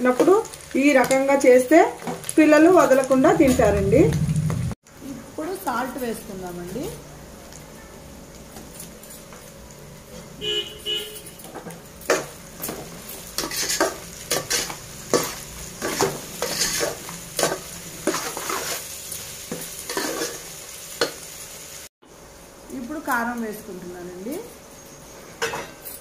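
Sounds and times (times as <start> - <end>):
frying sizzle: 0.0 - 26.0
metal ladle scraping pot: 13.4 - 18.8.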